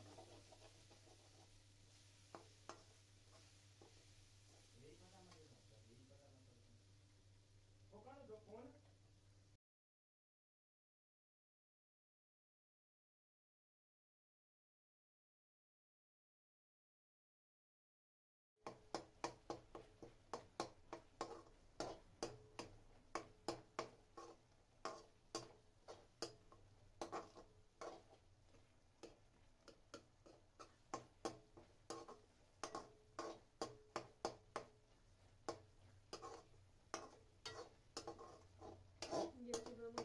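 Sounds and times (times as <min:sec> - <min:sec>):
metal spatula scraping a metal pan: 0:00.0 - 0:04.8, 0:18.7 - 0:40.0.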